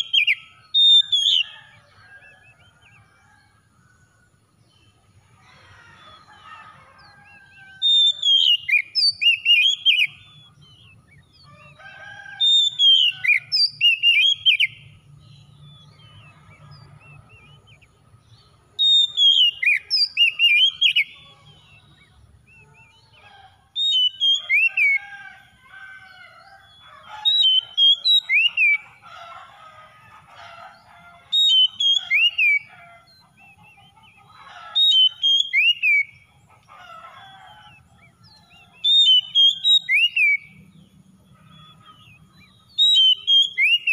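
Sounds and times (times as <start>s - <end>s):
bird whistled song phrases: 7.5s - 11.3s, 18.8s - 21.2s, 23.8s - 25.0s, 38.3s - 40.5s, 41.6s - 43.9s.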